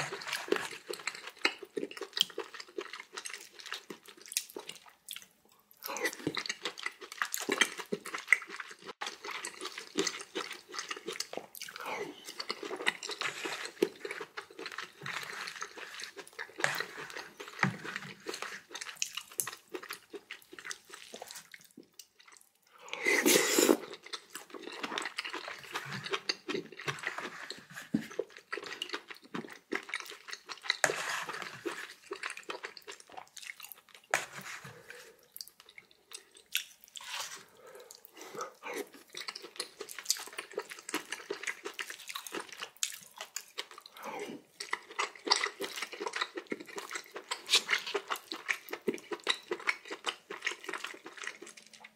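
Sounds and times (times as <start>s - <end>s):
person chewing and smacking: 0.0s - 51.9s
slurp: 22.8s - 24.0s, 30.7s - 35.7s, 36.5s - 39.2s.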